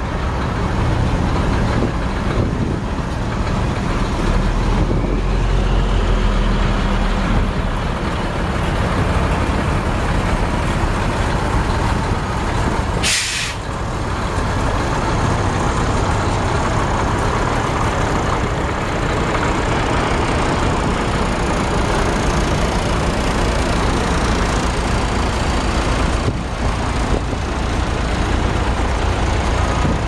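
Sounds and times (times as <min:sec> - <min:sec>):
diesel truck engine idling: 0:00.0 - 0:30.0
air brake hiss: 0:13.0 - 0:13.7.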